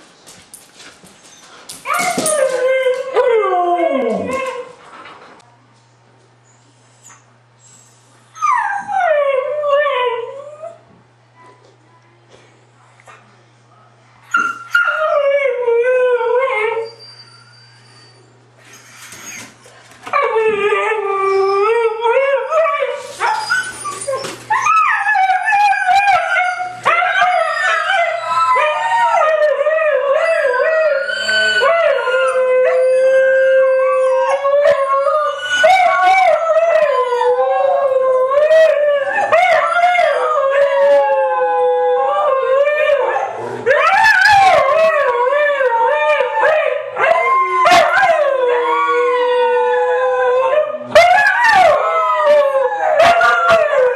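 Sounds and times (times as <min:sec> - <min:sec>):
huskies howling in chorus: 0:24.5 - 0:53.9.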